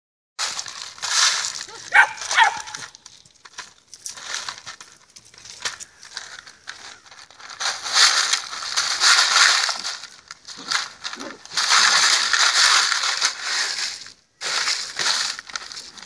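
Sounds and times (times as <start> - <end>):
ice cubes rattling in plastic bowl: 0.4 - 16.0
dog yipping: 1.8 - 2.8.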